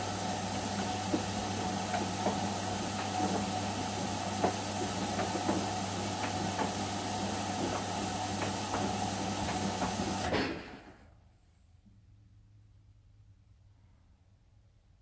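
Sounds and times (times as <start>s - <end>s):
washing machine motor hum: 0.0s - 10.9s.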